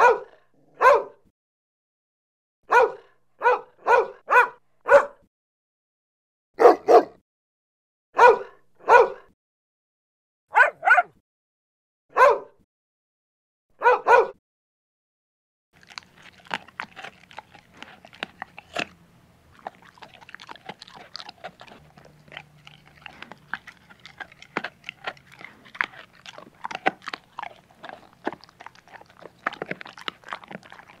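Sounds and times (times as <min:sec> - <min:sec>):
dog chewing and crunching food: 0:15.8 - 0:31.0.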